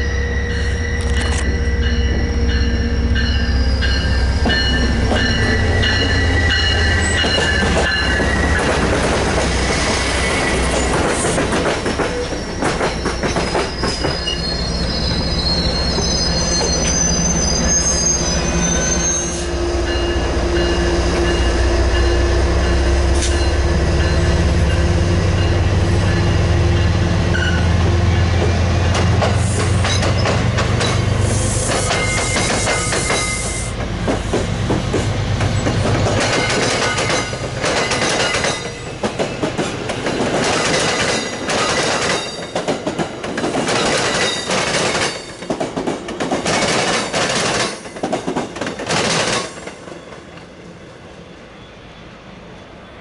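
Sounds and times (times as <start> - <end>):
train wheel squeal: 0.0 - 24.8, 27.3 - 33.8, 51.2 - 53.0.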